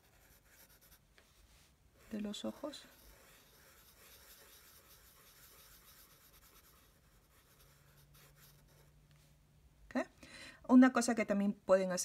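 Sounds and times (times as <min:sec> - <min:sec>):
marker scratching on paper: 0:00.0 - 0:08.9.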